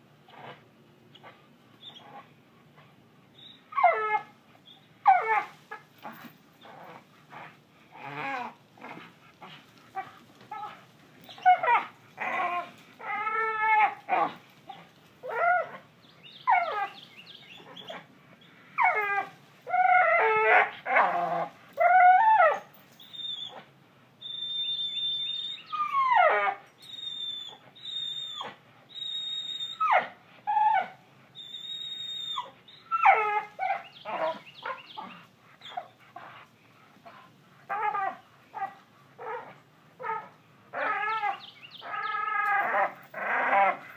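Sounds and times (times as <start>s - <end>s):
dog whining and yelping: 0.3s - 0.6s, 1.2s - 18.1s, 18.8s - 43.9s.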